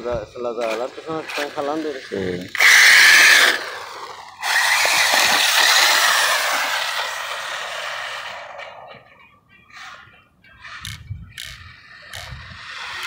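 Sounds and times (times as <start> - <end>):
tyres rushing on concrete: 0.8 - 9.0
toy car motor whining: 2.6 - 9.1, 9.7 - 13.0.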